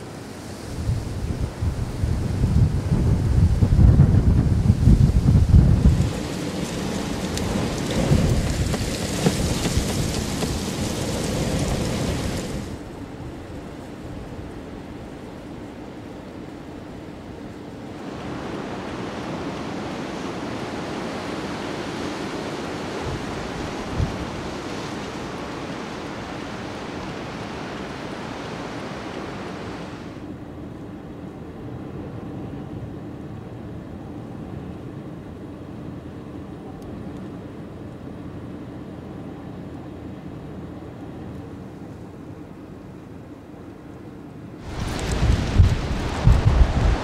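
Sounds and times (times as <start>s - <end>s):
wind buffeting microphone: 0.7s - 14.9s, 18.0s - 28.0s, 44.6s - 47.0s.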